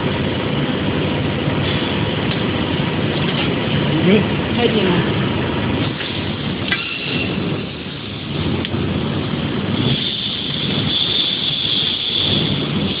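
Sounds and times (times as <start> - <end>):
workshop machinery rumbling hiss: 9.3 - 13.0
thin high whine: 9.6 - 13.0.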